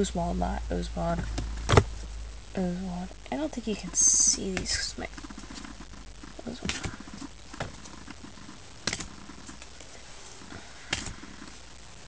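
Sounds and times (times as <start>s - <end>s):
low hum: 0.0s - 12.0s
cards and packaging clicks and rustles: 4.5s - 11.6s.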